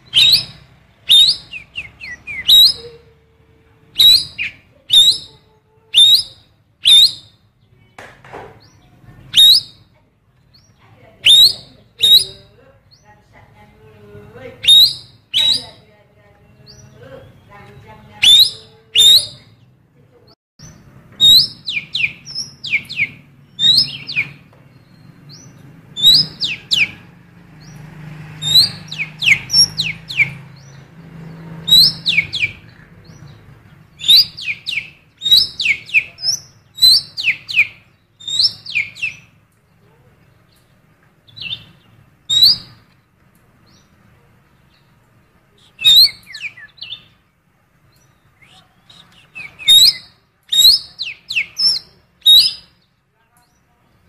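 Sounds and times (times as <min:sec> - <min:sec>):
songbird whistled calls: 0:00.0 - 0:03.1, 0:04.0 - 0:07.5, 0:08.6 - 0:09.9, 0:11.2 - 0:12.5, 0:14.6 - 0:15.8, 0:18.2 - 0:19.6, 0:20.6 - 0:27.0, 0:28.4 - 0:30.8, 0:31.6 - 0:39.3, 0:41.3 - 0:42.8, 0:45.6 - 0:47.1, 0:48.0 - 0:52.8.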